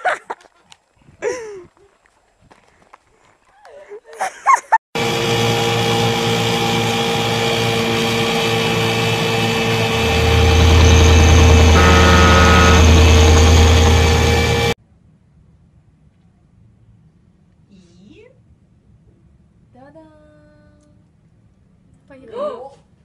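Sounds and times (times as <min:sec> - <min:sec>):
boat engines rumbling: 0:05.0 - 0:14.8.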